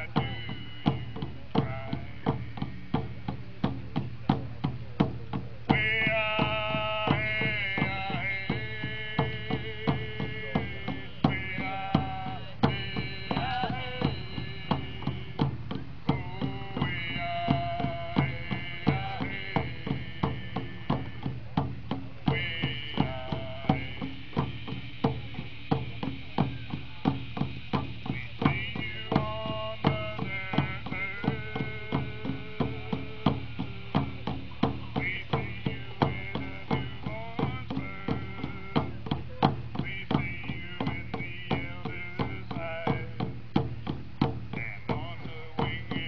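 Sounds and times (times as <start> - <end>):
voices singing long sliding notes: 0.0 - 3.2, 5.7 - 15.5, 16.1 - 21.2, 22.3 - 37.4
hand drums beating: 0.0 - 46.0.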